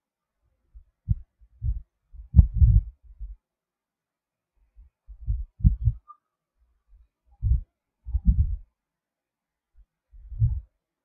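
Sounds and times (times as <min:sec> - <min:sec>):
dull low thumps: 0:01.0 - 0:03.4, 0:05.1 - 0:06.0, 0:07.4 - 0:08.6, 0:10.2 - 0:10.7.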